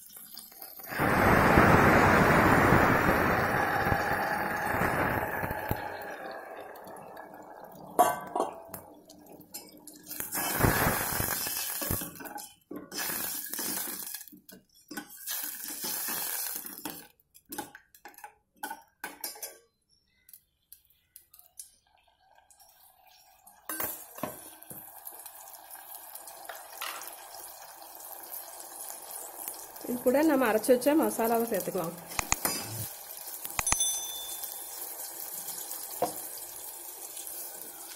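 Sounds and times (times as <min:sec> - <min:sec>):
liquid pouring into a pot: 0:00.0 - 0:17.2, 0:21.8 - 0:31.2, 0:32.1 - 0:37.9
steel ladle clanking and scraping pot: 0:32.2 - 0:32.9.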